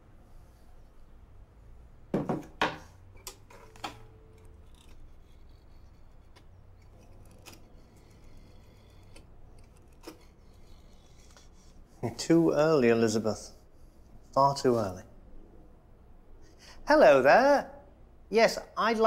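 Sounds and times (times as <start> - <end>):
clattering knocks on wooden desk: 2.1 - 2.9.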